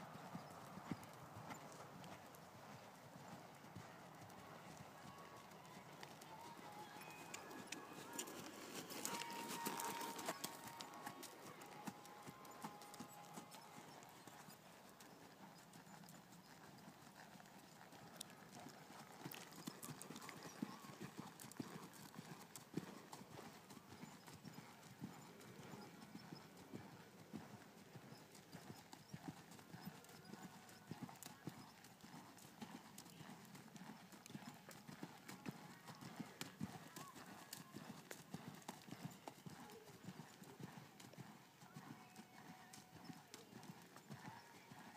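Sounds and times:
horse hoofbeats on sand: 4.7 - 15.2.

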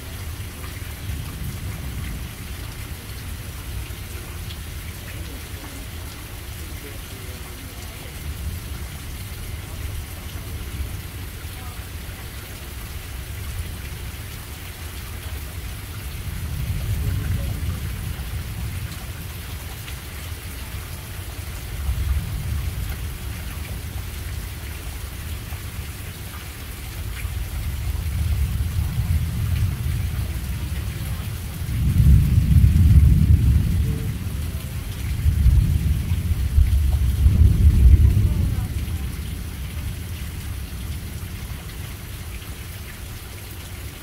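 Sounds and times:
steady rain falling: 0.0 - 44.0
thunder rolling: 31.6 - 34.6, 35.2 - 39.2.

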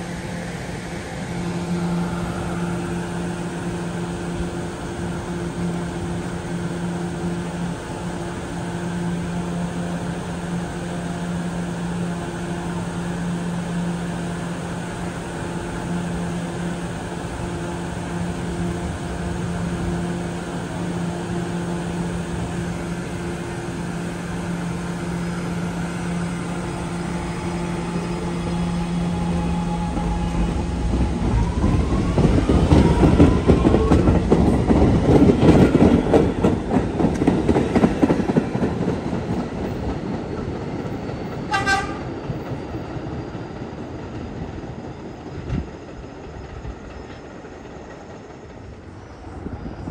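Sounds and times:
train electrical hum: 0.0 - 49.9
train rumbling and rail clacking: 0.0 - 49.9
train horn toot: 41.5 - 42.1.

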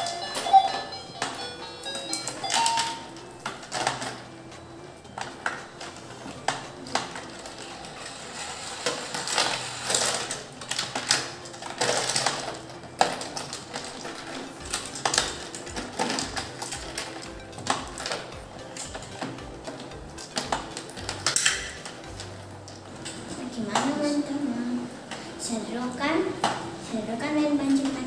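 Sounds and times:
plastic clicks and clacks: 5.1 - 23.2
toy motor whirring: 7.0 - 22.3.

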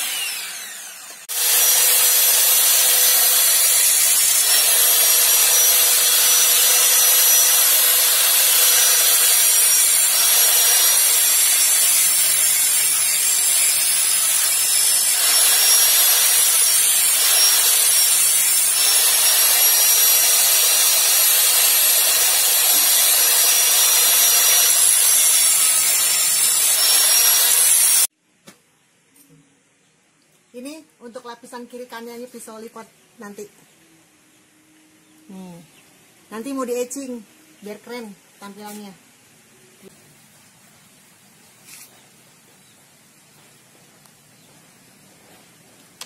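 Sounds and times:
angle grinder grinding metal: 0.0 - 28.1.

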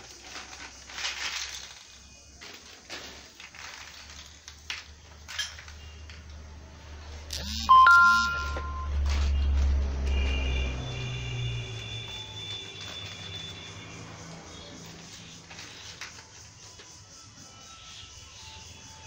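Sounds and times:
plastic packaging rustling: 0.0 - 6.2, 8.9 - 17.0
two-note electronic chime: 7.4 - 9.0.

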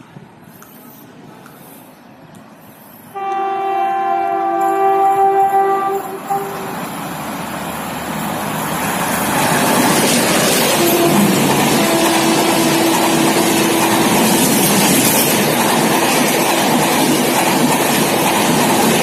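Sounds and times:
train rumbling past: 0.0 - 19.0
short horn toot: 3.2 - 6.8
locomotive horn blast: 3.2 - 6.9, 10.7 - 13.8.

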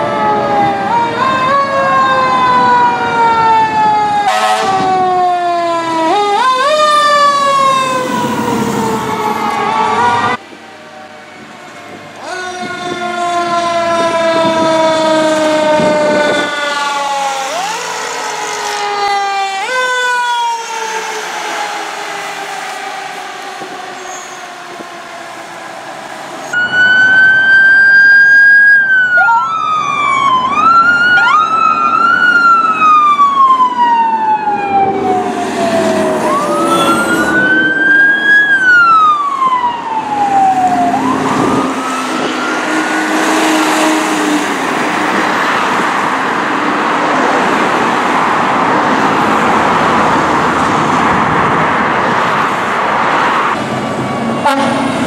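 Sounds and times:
fire truck sirens: 0.0 - 55.0
loud steady rushing noise: 40.3 - 55.0.

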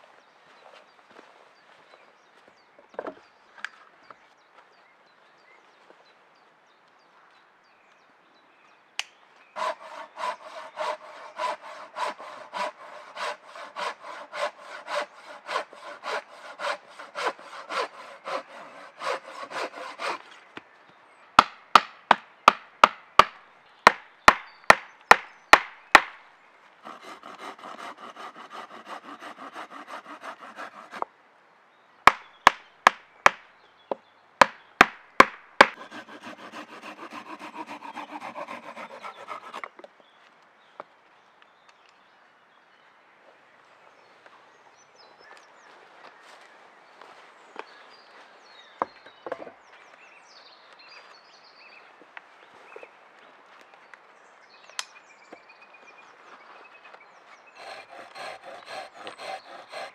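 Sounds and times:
hammer blows on wood: 9.6 - 20.2, 57.6 - 59.9
hand saw cutting wood: 9.6 - 20.3, 26.8 - 31.0, 35.6 - 39.7, 57.5 - 59.9.

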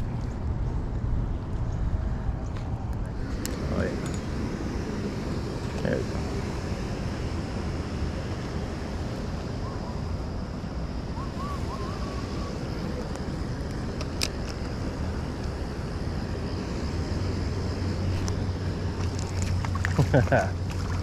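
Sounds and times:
faint warbling whistle: 9.5 - 10.2, 11.0 - 13.0.

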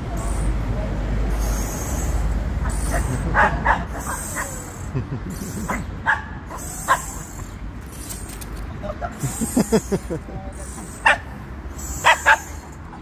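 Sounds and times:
small dogs yipping and barking: 1.4 - 8.3, 10.7 - 13.0.

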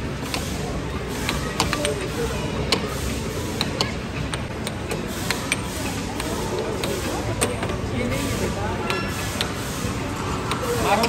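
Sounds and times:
air hockey puck clacking: 1.2 - 2.1, 2.7 - 7.8.

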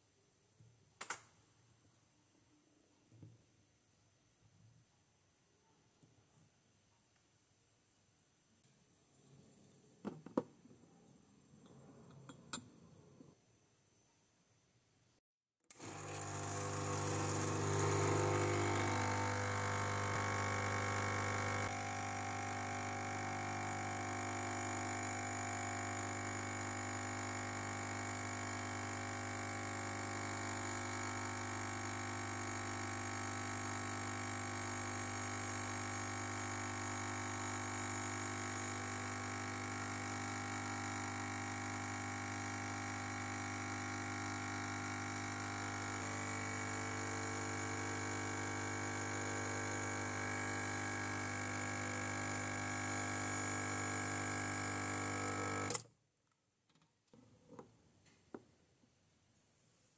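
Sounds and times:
espresso machine pump buzzing: 15.7 - 55.8.

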